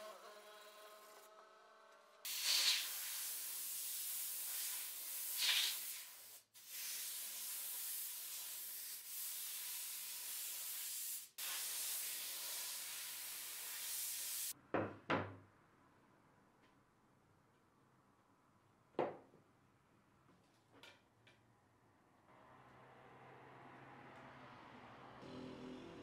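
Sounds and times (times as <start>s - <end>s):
spray gun hissing: 2.3s - 14.6s.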